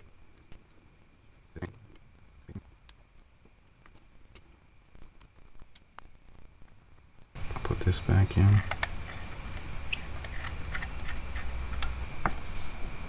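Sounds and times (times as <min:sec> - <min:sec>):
small metal parts clicking: 0:08.4 - 0:12.0.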